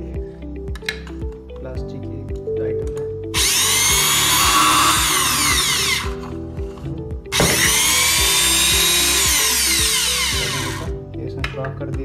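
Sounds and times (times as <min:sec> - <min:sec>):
background music: 0:00.0 - 0:12.0
electric drill whining: 0:03.4 - 0:11.0.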